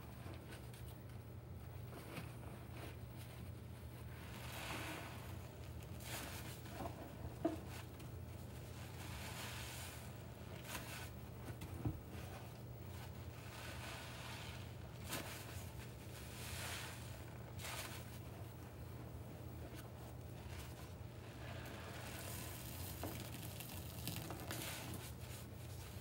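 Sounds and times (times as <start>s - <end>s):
sponges squishing in water: 20.4s - 26.0s.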